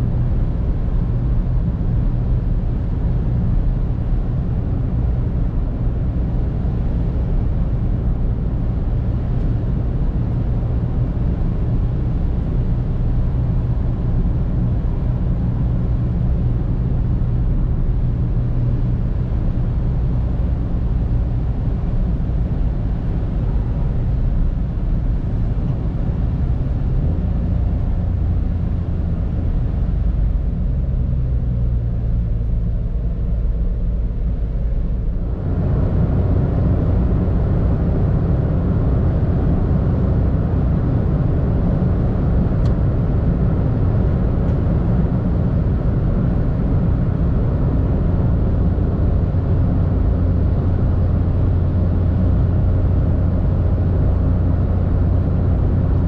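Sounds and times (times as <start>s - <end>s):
car engine cruising: 0.0s - 56.0s.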